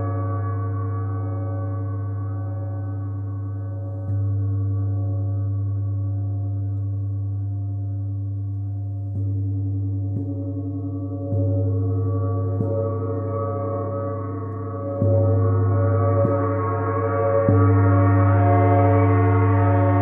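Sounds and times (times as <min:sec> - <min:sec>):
deep steady hum: 0:00.0 - 0:20.0
gong ringing: 0:10.2 - 0:20.0.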